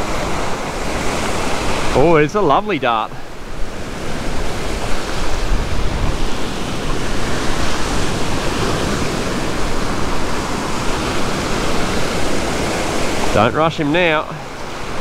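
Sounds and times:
waves breaking on sand: 0.0 - 15.0.

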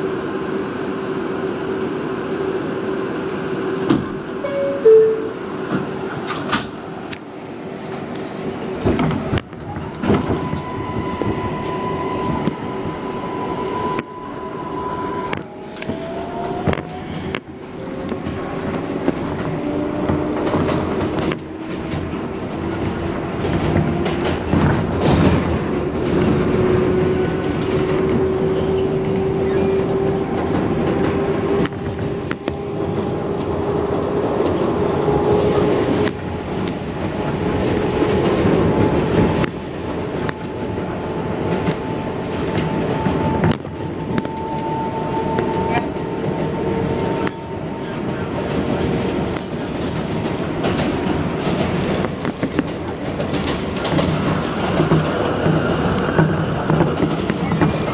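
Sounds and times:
train rumble: 0.0 - 57.9
train traction motors whining: 8.1 - 57.9
wheels clicking over rail joints: 35.8 - 57.9.

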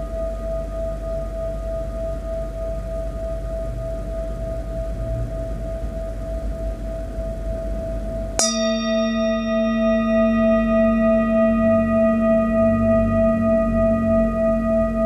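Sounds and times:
singing bowl ringing: 8.4 - 15.0
singing bowl struck with mallet: 8.4 - 15.0.

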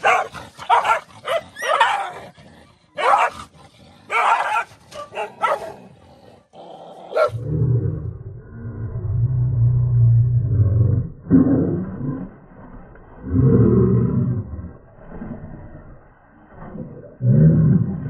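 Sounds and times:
dogs barking and snarling: 0.0 - 8.0
dog growling: 0.0 - 12.2.

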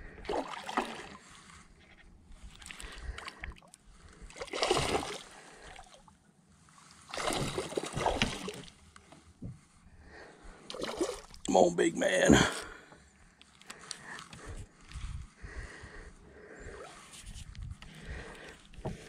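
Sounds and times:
fish splashing at water surface: 4.4 - 5.8, 7.1 - 8.7, 10.7 - 11.4.

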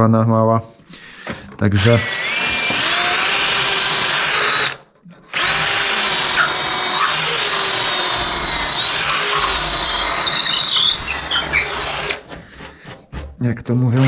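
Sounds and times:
electric drill whining: 1.8 - 12.3.

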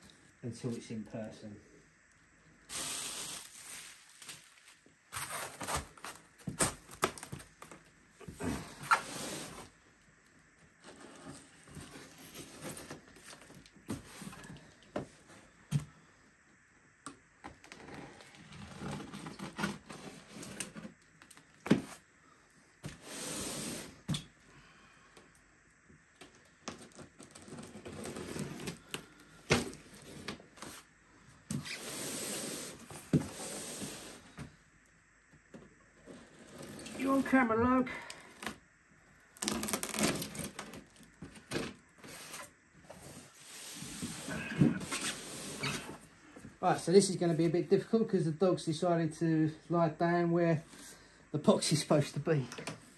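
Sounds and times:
packaging rustling and scraping: 2.7 - 9.7, 10.8 - 14.6, 17.6 - 22.0, 26.7 - 30.9, 39.3 - 46.0.

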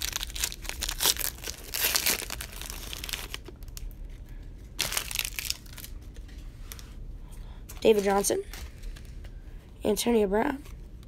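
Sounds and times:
wrapper tearing and crinkling: 0.0 - 4.0, 4.8 - 6.8.

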